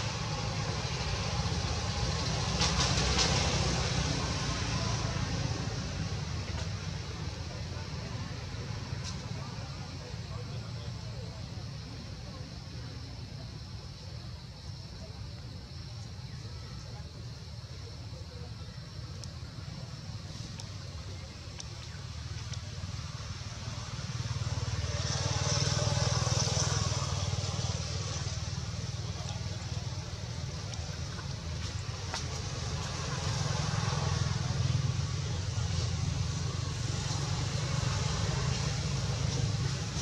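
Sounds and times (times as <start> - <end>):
motor traffic rumble: 0.0 - 40.0
vehicles passing: 0.0 - 40.0.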